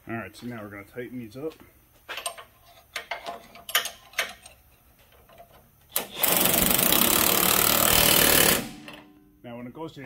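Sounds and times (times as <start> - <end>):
pneumatic wrench running: 5.9 - 9.0.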